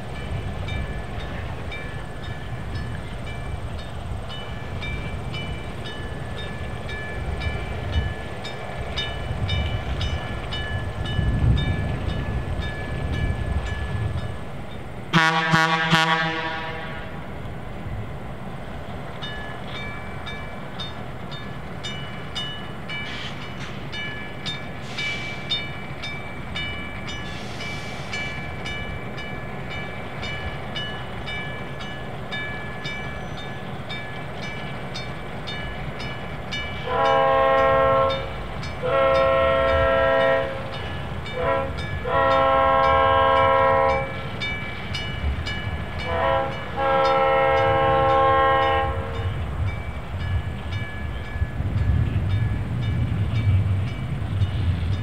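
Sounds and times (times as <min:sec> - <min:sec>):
diesel train engine rumbling: 0:00.0 - 0:55.0
locomotive air horn: 0:15.1 - 0:17.2, 0:36.8 - 0:44.2, 0:46.0 - 0:49.4
train wheels clicking over rail joints: 0:18.6 - 0:37.0.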